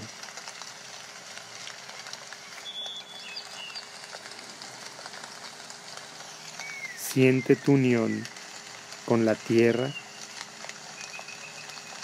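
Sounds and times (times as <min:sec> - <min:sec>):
crackling hiss: 0:00.0 - 0:12.0
faint high chirps: 0:11.0 - 0:12.0.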